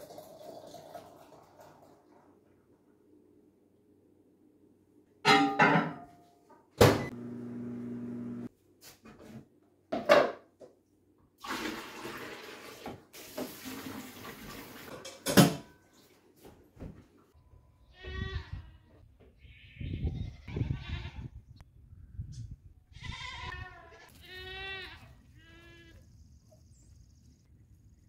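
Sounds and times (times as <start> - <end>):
low hum: 7.1 - 8.5
faucet running: 11.4 - 14.9.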